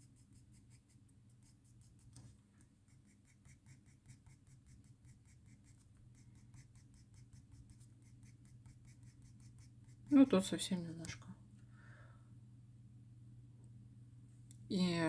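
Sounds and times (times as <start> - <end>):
pencil scratching on paper: 0.0 - 10.4
low steady hum: 0.0 - 15.0.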